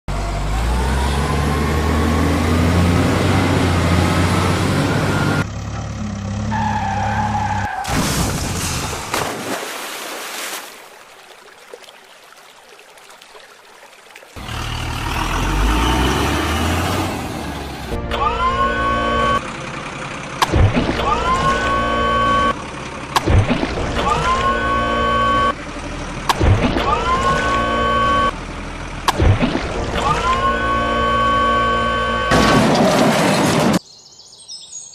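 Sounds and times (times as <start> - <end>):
engine with high whine: 0.1 - 7.7, 14.4 - 33.8
heavy truck engine: 0.1 - 9.1, 14.4 - 33.8.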